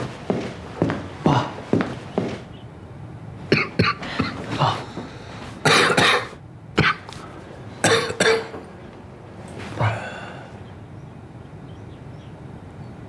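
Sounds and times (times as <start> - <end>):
man coughing: 5.6 - 7.1, 7.8 - 8.6.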